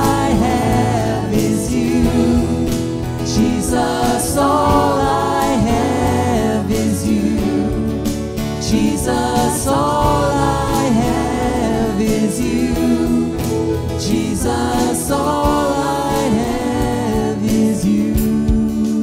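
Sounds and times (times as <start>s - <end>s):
band accompaniment: 0.0s - 19.0s
people singing into microphones: 0.0s - 19.0s.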